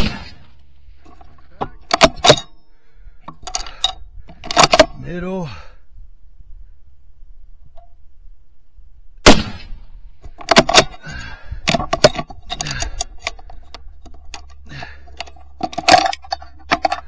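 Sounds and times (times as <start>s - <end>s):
rifle shot: 0.0s - 0.6s, 9.2s - 9.9s
rifle bolt clicking and clattering: 1.0s - 2.6s, 3.2s - 5.0s, 10.2s - 17.0s.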